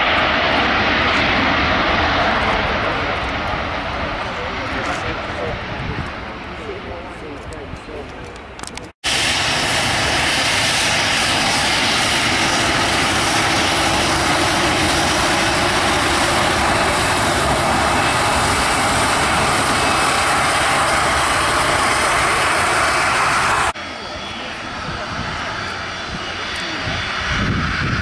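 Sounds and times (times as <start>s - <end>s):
jet engine rush: 0.0s - 28.0s.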